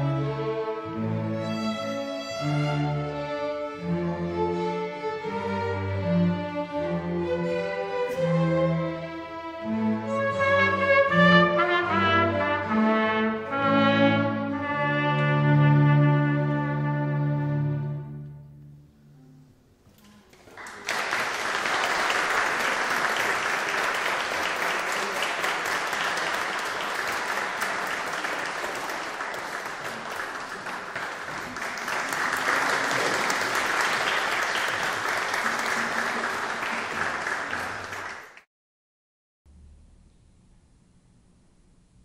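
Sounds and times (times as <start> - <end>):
string orchestra note: 0.0 - 19.6
audience applauding: 20.4 - 38.5.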